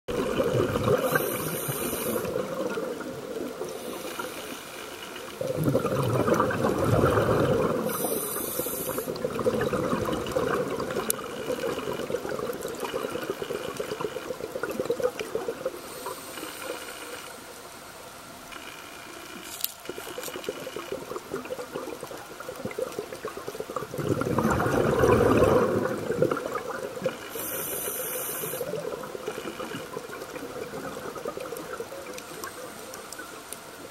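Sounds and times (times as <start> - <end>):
exhaled bubbles gushing: 0.1 - 4.3, 5.2 - 17.1, 19.8 - 33.9
steady crackle: 0.1 - 33.9
regulator air hisses: 1.1 - 2.3, 7.9 - 9.1, 27.3 - 28.7.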